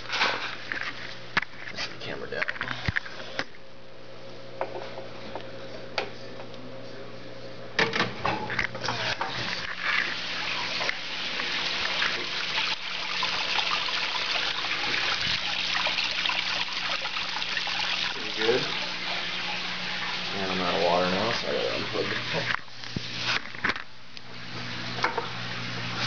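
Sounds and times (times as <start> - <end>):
pump humming: 7.8 - 26.0
water spraying and splashing: 8.9 - 23.5.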